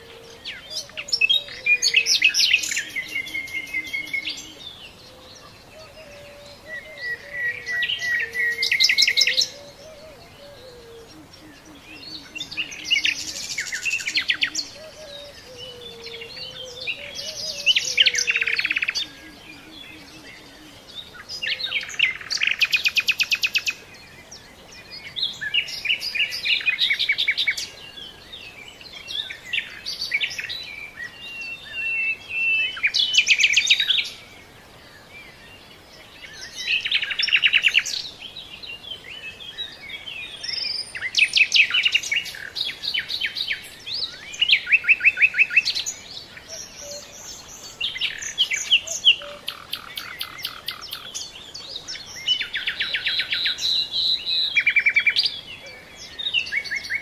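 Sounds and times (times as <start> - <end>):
songbirds singing trills: 0.0 - 57.0.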